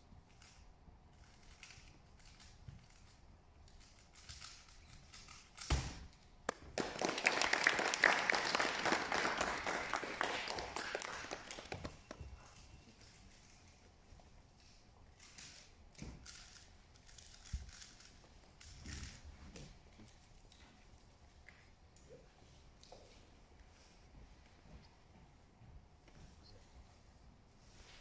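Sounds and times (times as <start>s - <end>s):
speed cube plastic clicking: 1.2s - 5.7s, 15.2s - 19.2s
thump: 5.7s - 6.1s.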